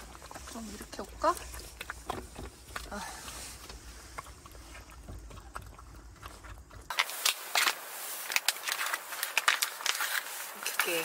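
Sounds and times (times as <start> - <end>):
dog licking and chewing: 0.0 - 7.7
plastic pouch crinkling: 6.9 - 11.0.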